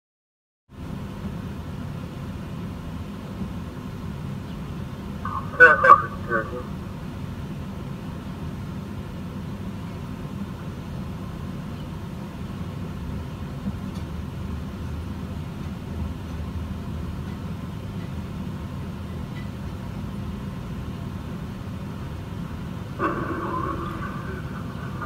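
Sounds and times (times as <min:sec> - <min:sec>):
vehicle engines idling: 0:22.7 - 0:25.0.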